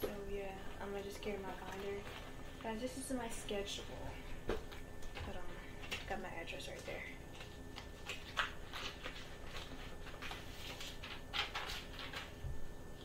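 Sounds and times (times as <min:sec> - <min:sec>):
faint room hum: 0:00.0 - 0:13.0
paper crinkling: 0:01.1 - 0:02.8, 0:04.6 - 0:13.0.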